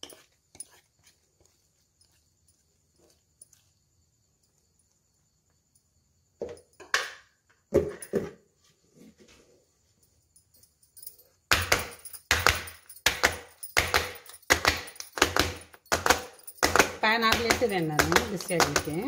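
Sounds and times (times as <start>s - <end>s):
cake tin knocking on countertop: 11.5s - 19.0s.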